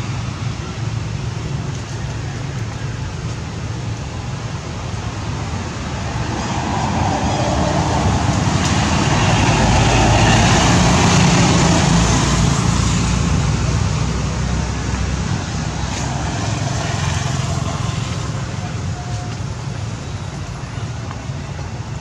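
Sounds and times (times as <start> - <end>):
motor vehicle passing: 5.5 - 18.6.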